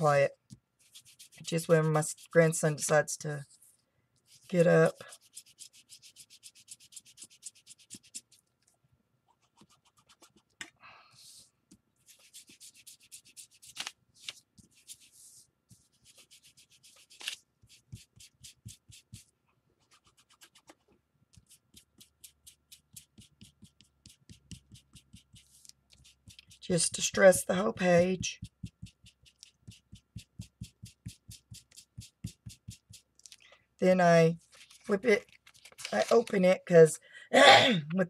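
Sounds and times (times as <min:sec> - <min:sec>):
ink applicator rubbing on paper: 0:00.8 - 0:02.9, 0:04.3 - 0:08.4, 0:12.0 - 0:13.7, 0:14.6 - 0:20.8, 0:21.4 - 0:33.2.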